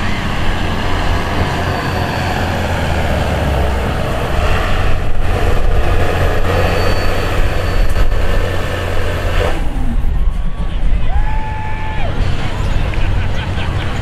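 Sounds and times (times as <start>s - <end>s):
diesel truck engine under load: 0.0s - 11.0s.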